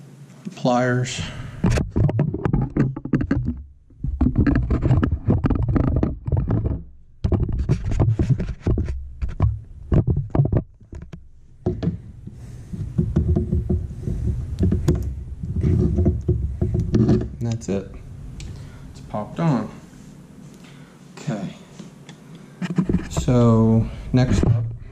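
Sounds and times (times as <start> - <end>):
low rumble of handling: 1.2 - 20.6, 22.8 - 24.9
metal clicks knocks and scraping: 1.6 - 17.8, 22.1 - 23.4.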